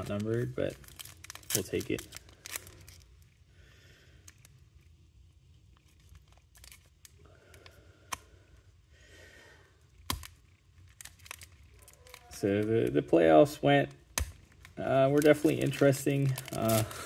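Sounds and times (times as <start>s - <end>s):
foil pack crinkling and tearing: 0.0s - 3.4s, 4.1s - 7.7s, 10.0s - 17.0s.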